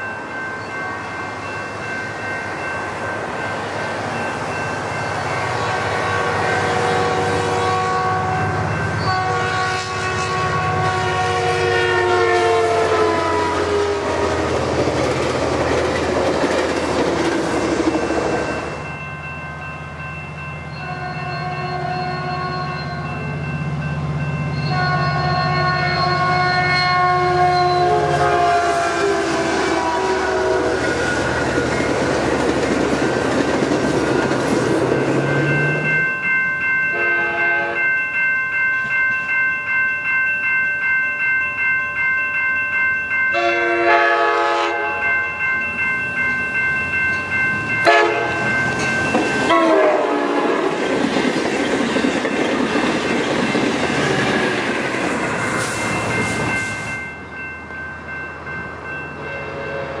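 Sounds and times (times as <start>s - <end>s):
train rumbling by: 0.0s - 37.9s, 43.4s - 60.0s
crossing bell ringing: 0.0s - 60.0s
train cars clickety-clack: 3.9s - 18.9s, 27.4s - 36.0s, 47.1s - 57.0s
train horn blasts: 5.6s - 14.2s, 20.8s - 22.9s, 24.6s - 30.8s, 36.9s - 37.8s, 43.4s - 45.0s, 47.8s - 48.5s, 49.5s - 50.6s.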